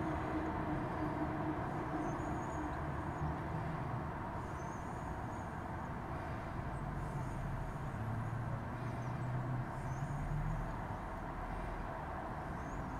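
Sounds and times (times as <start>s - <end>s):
road traffic rumble: 0.0s - 12.9s.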